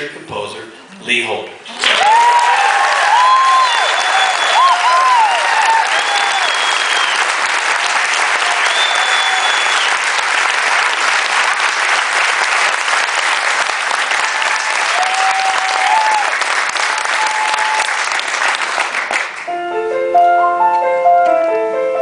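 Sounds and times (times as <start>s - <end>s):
crowd cheer: 1.7s - 19.4s
audience applauding: 1.7s - 19.5s
high whistles: 3.4s - 7.4s, 8.5s - 10.0s.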